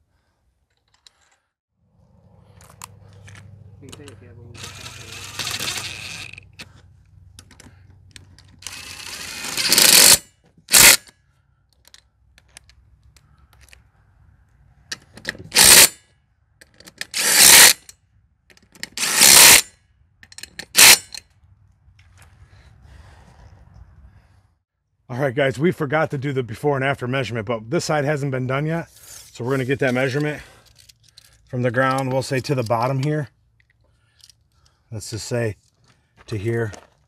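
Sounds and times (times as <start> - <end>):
impact driver bursts: 8.6 - 11.1, 15.5 - 16.0, 17.1 - 17.8, 18.9 - 19.7, 20.7 - 21.2.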